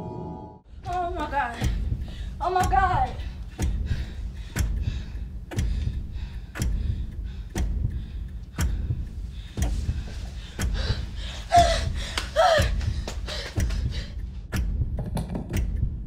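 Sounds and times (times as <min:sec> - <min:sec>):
heavy ticking thump: 0:00.8 - 0:16.0
girl gasping cries: 0:11.2 - 0:12.8.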